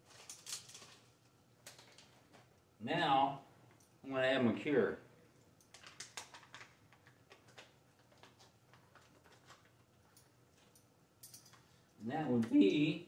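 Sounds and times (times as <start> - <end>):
plastic bag rustling: 0.0 - 2.5.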